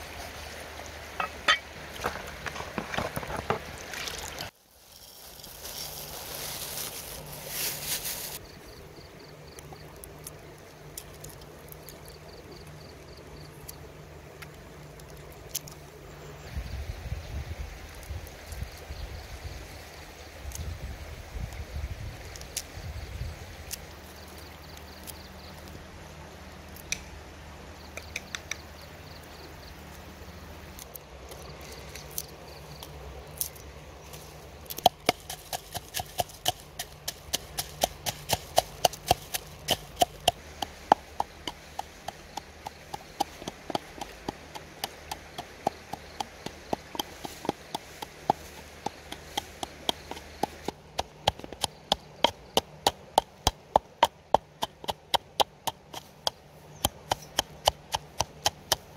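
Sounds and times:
steady background hiss: 0.0s - 35.0s
pestle pounding in mortar: 34.8s - 58.9s.

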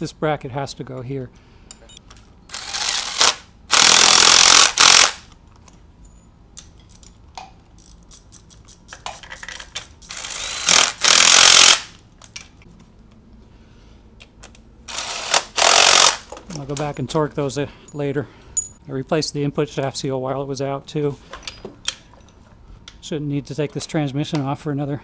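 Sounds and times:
cordless impact wrench running: 2.5s - 5.3s, 10.1s - 11.9s, 14.9s - 16.3s.

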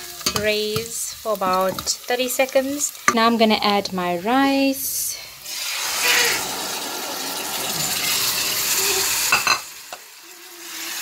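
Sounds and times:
hot oil sizzling: 0.0s - 11.0s
rice poured into pan: 5.5s - 9.9s.

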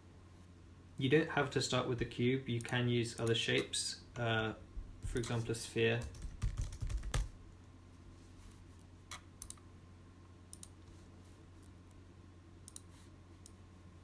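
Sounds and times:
computer mouse clicks: 9.1s - 9.6s, 10.5s - 10.8s, 12.6s - 13.6s.

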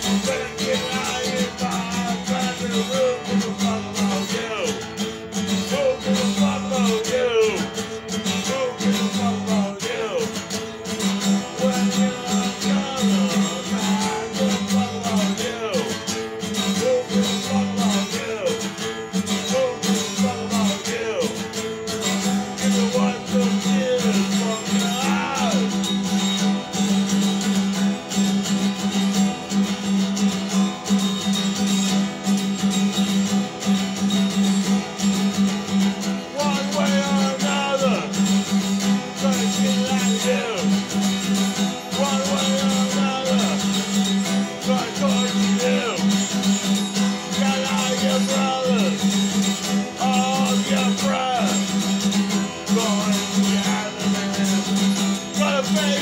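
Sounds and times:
acoustic guitar strumming: 0.0s - 56.0s.

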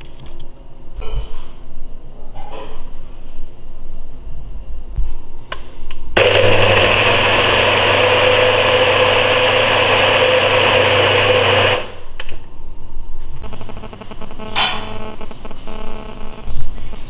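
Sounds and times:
blender running: 6.2s - 12.0s.

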